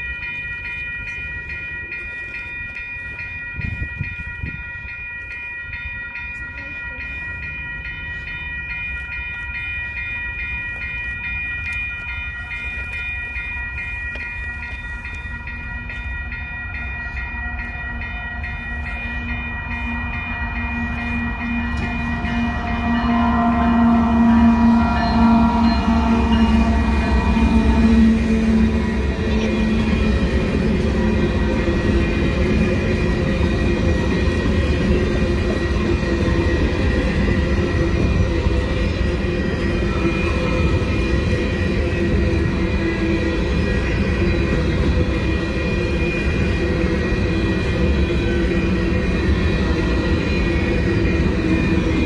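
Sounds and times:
crossing warning bell ringing: 0:00.0 - 0:52.0
diesel locomotive rumbling: 0:00.0 - 0:52.0.

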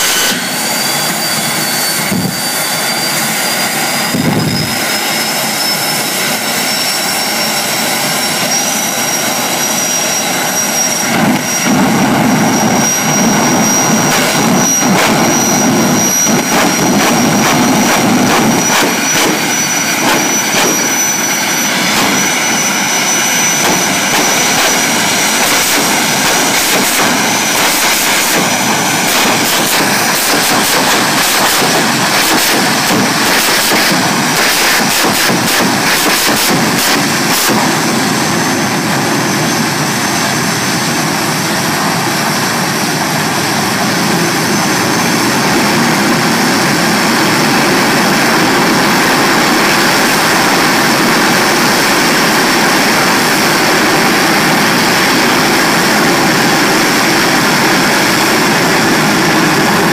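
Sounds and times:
jet engines roaring: 0:00.0 - 0:59.9
afterburner crackling: 0:07.9 - 0:40.0.

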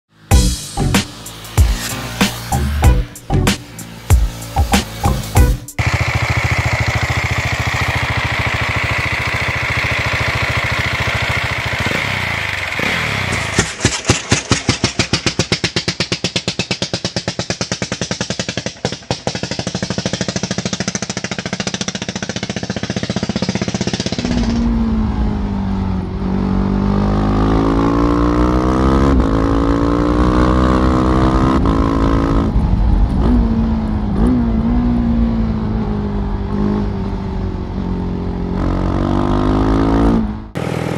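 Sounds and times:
motorcycle engine running steadily: 0:00.1 - 0:25.4
motorcycle revving and shifting: 0:00.1 - 0:40.9
motorcycle engine slow even thumps: 0:13.2 - 0:25.0.

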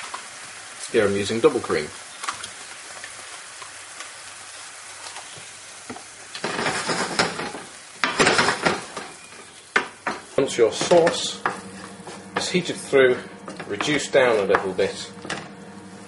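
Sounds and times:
mushrooms sizzling in a frying pan: 0:00.0 - 0:16.0
spatula scraping a pan: 0:10.8 - 0:15.6.

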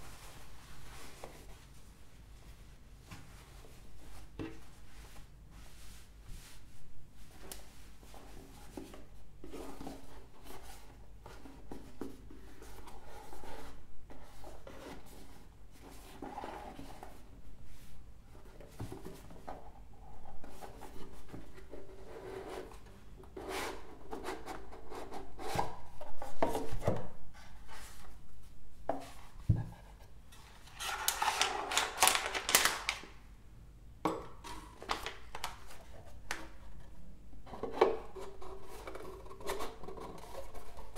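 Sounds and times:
plastic bag crinkling: 0:30.9 - 0:33.1.

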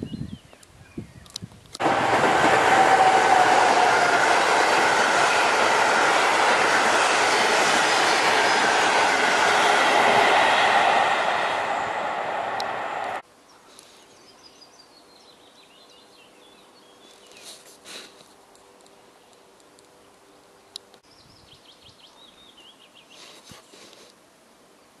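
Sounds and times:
faint birdsong: 0:00.0 - 0:01.4, 0:13.4 - 0:17.7, 0:18.6 - 0:24.0
trains rumbling past: 0:01.8 - 0:13.2.

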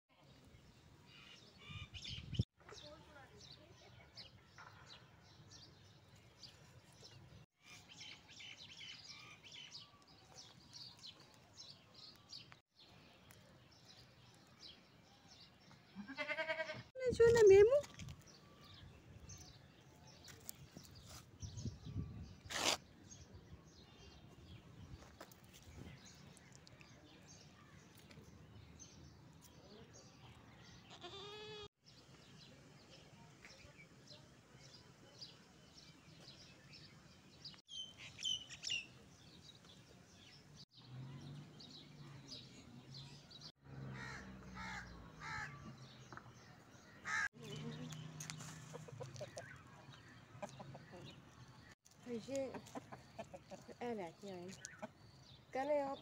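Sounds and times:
small birds chirping: 0:00.2 - 0:56.0
goat bleating: 0:16.0 - 0:16.9, 0:30.9 - 0:31.7
chickens clucking: 0:48.2 - 0:51.3, 0:52.3 - 0:53.9.

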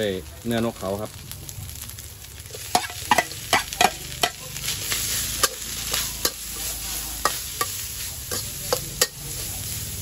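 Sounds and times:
oil sizzling: 0:00.0 - 0:10.0
metal spatula clinking on wok: 0:02.7 - 0:04.4, 0:07.2 - 0:09.3.

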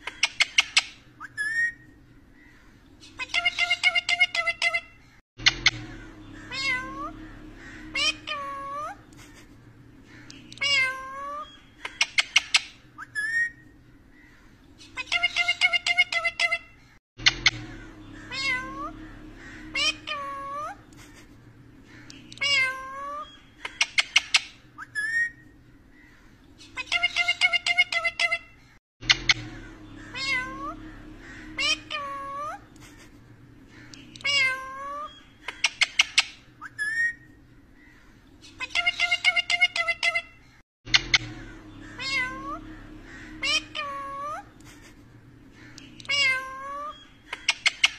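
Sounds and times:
parakeet calling: 0:02.4 - 0:28.7, 0:29.3 - 0:32.8, 0:33.5 - 0:47.9
parakeet chirps: 0:03.0 - 0:09.0, 0:10.1 - 0:13.6, 0:14.8 - 0:21.2, 0:21.9 - 0:25.4, 0:29.3 - 0:32.8, 0:33.7 - 0:37.3, 0:38.4 - 0:44.6, 0:45.5 - 0:47.9.

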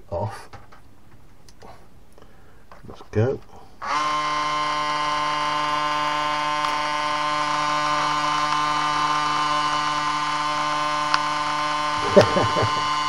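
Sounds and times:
small electric motor whirring: 0:03.8 - 0:13.0.

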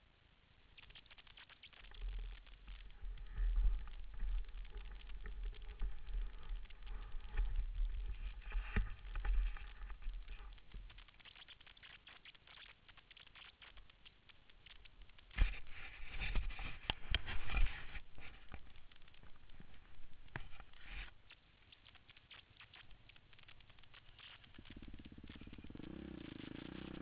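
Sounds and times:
microphone handling noise: 0:01.9 - 0:11.0, 0:15.2 - 0:21.2.

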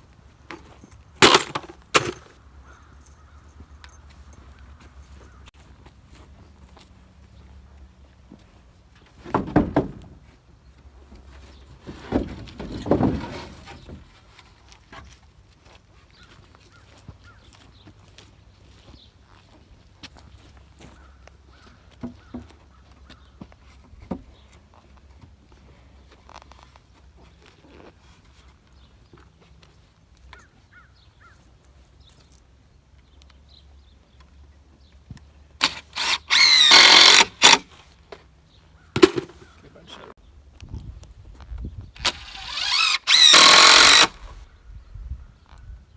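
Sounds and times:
boards clattering and scraping: 0:00.5 - 0:02.4, 0:09.0 - 0:10.4, 0:11.2 - 0:15.1
wooden boards knocking: 0:09.3 - 0:10.2
cordless drill driving screw into wood: 0:35.6 - 0:37.7, 0:42.0 - 0:44.4.

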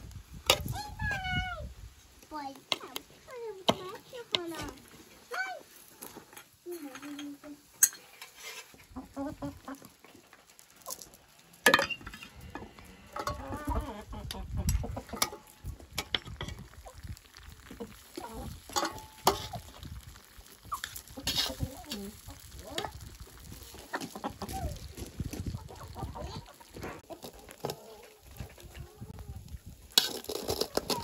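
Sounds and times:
spatula scraping metal pot: 0:07.8 - 0:08.9, 0:18.1 - 0:19.8, 0:20.8 - 0:22.3
hens clucking: 0:08.6 - 0:11.3, 0:12.1 - 0:19.8, 0:20.6 - 0:29.6.

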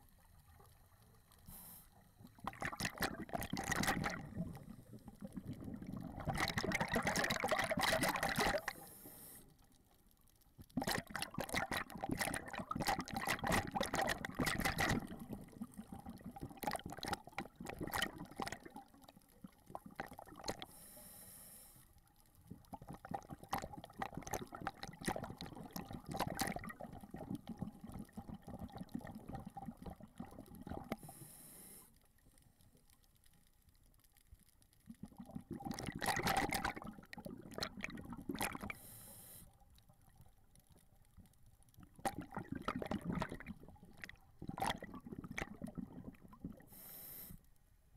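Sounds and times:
crackling exhaust bubbles: 0:00.0 - 0:20.8, 0:21.9 - 0:31.3, 0:32.1 - 0:38.9, 0:39.6 - 0:47.0
hissing regulator inhalations: 0:38.7 - 0:39.5, 0:46.7 - 0:47.4.

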